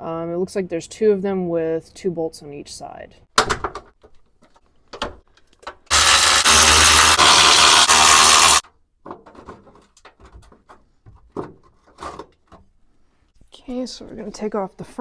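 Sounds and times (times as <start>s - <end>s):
impact wrench running: 5.9s - 8.6s.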